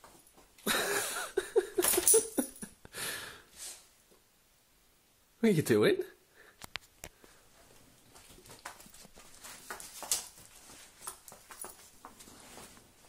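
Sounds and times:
soft taps rustles and clicks: 6.6s - 12.3s.

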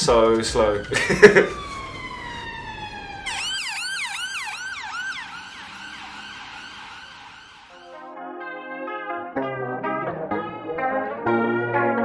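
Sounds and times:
ambulance siren wailing and yelping: 0.0s - 7.8s.

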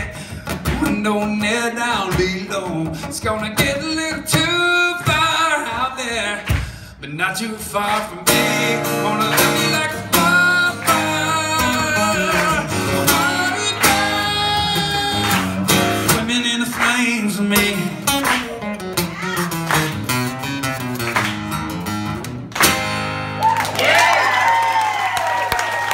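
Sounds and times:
man singing: 0.0s - 19.6s
acoustic guitar strumming: 0.0s - 23.4s
audience cheering: 23.2s - 25.9s.

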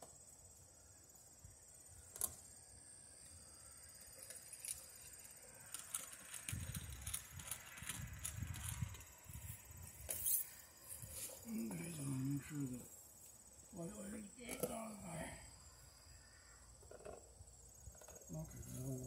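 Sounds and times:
high-pitched insect drone: 0.2s - 19.0s.

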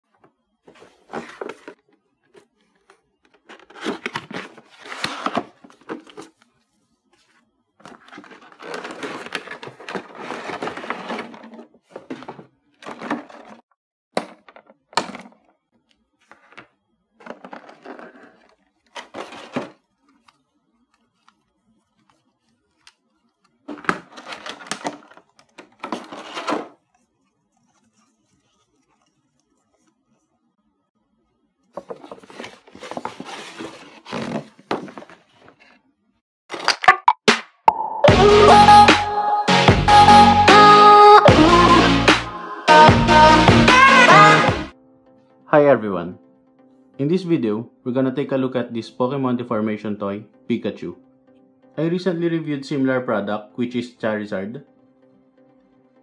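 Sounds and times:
plastic and cardboard crinkling: 0.1s - 13.6s, 16.2s - 30.4s, 31.7s - 35.8s.

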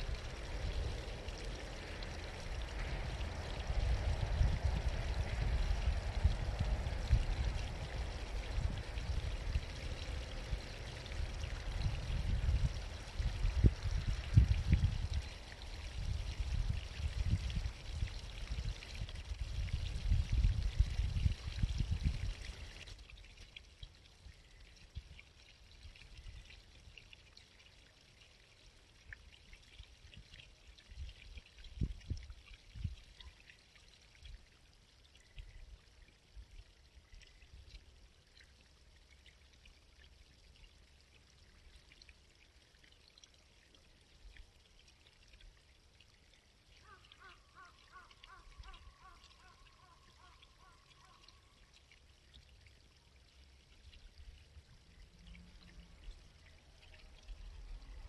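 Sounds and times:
low rumbles: 0.0s - 22.8s
brook babbling: 0.0s - 58.0s.

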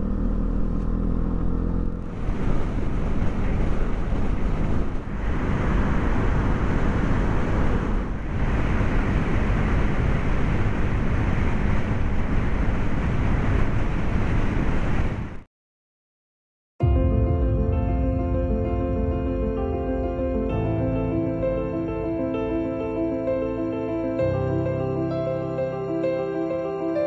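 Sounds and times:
wind rushing over microphone: 2.0s - 15.4s.

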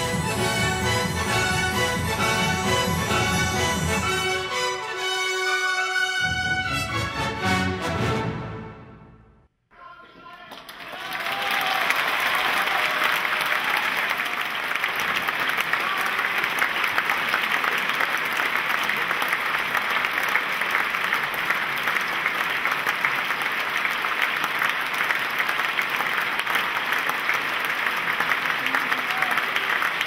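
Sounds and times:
audience applauding: 10.2s - 30.0s.

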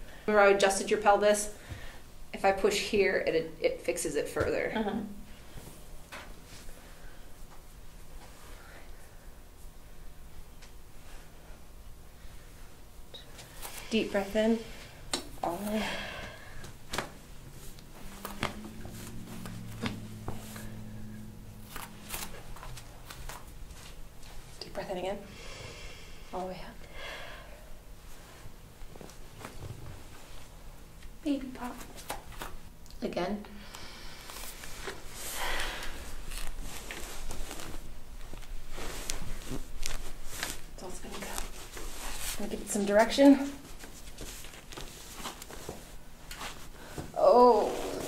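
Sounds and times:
low steady hum: 0.0s - 48.0s
skin and clothing rustle: 36.0s - 46.8s.

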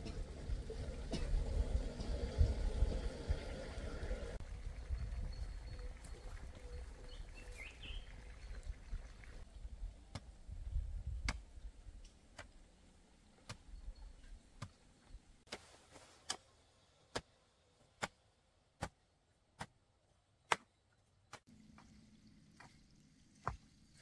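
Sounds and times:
low rumble: 0.0s - 7.0s.

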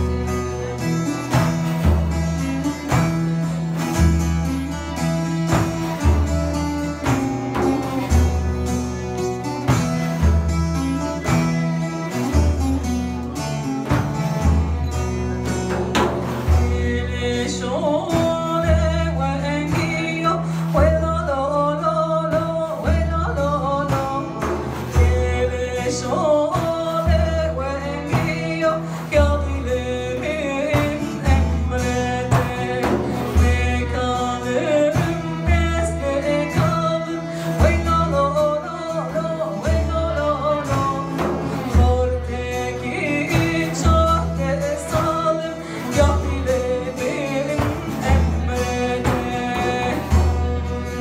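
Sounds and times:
frame drums: 0.0s - 51.0s
long-necked lute: 0.0s - 51.0s
violin: 0.0s - 51.0s
woman singing: 16.4s - 51.0s.

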